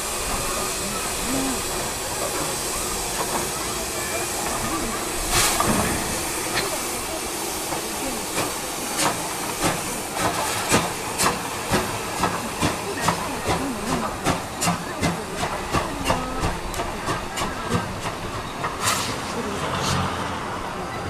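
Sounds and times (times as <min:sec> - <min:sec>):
steam hissing: 0:00.0 - 0:20.8
steam locomotive chuffing: 0:00.0 - 0:21.0.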